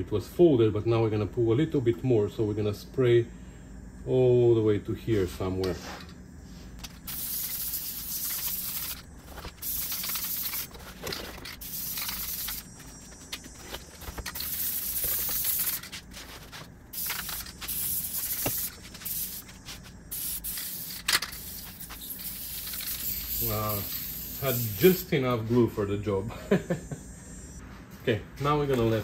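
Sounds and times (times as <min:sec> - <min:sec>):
aerosol can hissing: 0:06.8 - 0:25.1.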